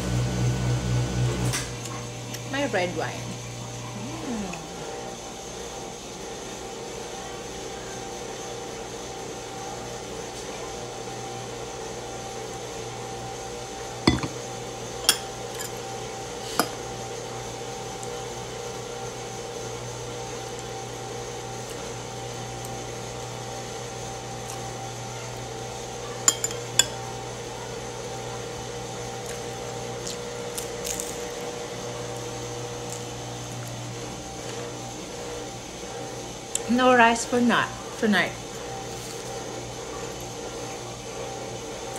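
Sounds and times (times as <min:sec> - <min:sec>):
steady background hum: 0:00.0 - 0:06.9, 0:12.5 - 0:41.9
glass and fork clinking on bowl: 0:14.1 - 0:14.4, 0:26.2 - 0:27.0.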